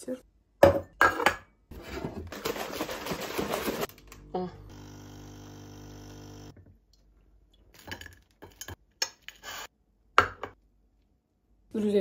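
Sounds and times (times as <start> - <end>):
coffee machine pump humming: 4.2 - 6.6.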